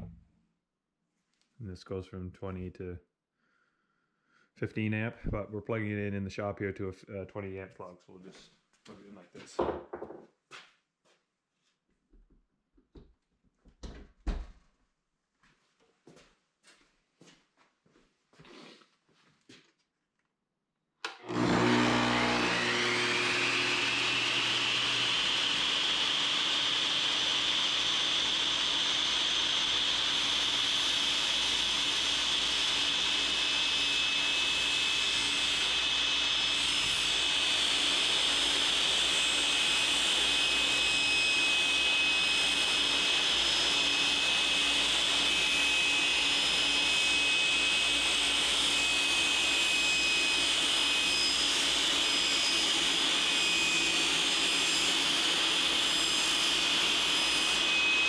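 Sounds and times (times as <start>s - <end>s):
masonry saw whining: 21.1s - 58.0s.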